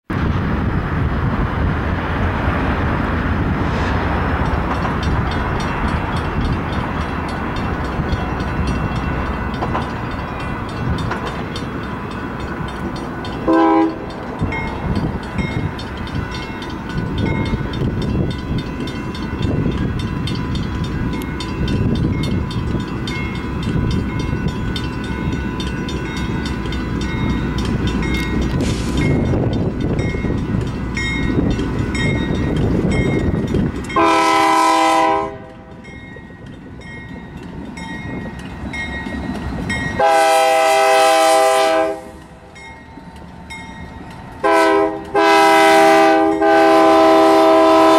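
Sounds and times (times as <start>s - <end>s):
freight train rumbling: 0.0s - 47.9s
railroad crossing bell dinging: 4.1s - 47.9s
locomotive horn blast: 13.4s - 14.1s, 34.0s - 35.6s, 40.0s - 42.2s, 44.4s - 47.9s.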